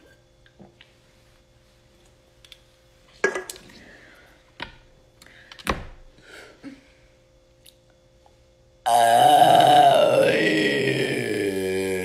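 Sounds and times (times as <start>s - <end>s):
breaths: 3.7s - 4.5s, 5.2s - 7.1s.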